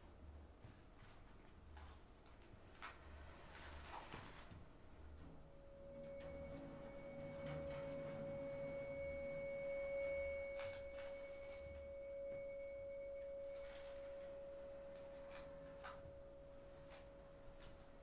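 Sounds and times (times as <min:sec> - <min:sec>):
bowed vibraphone tone: 0:05.5 - 0:18.0.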